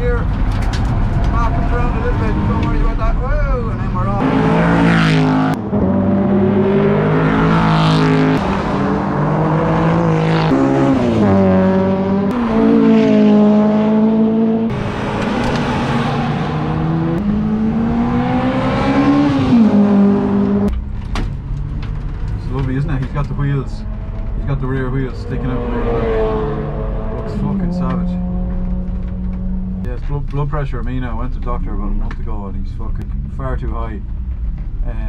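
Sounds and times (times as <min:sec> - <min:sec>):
race cars passing at high revs: 0:00.3 - 0:20.7, 0:23.7 - 0:29.9.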